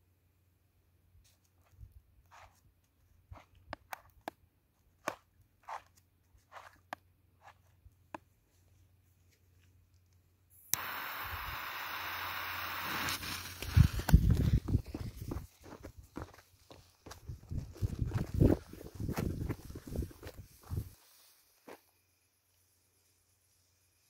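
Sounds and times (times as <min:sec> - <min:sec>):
jet lighter clicking and hissing: 0:10.6 - 0:14.2.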